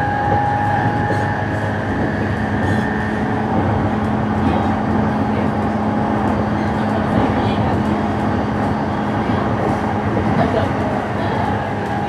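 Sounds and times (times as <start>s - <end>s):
train cabin rumble: 0.0s - 12.0s.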